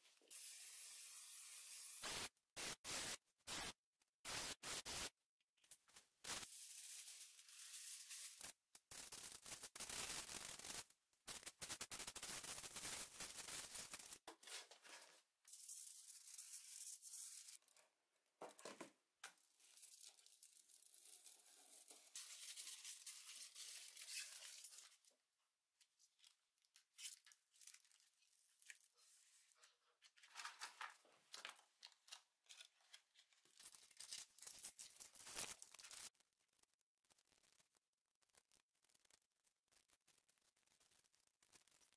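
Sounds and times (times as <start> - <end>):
aerosol can hissing: 0.3 - 3.7
foil crinkling and tearing: 6.8 - 14.2, 31.8 - 36.1.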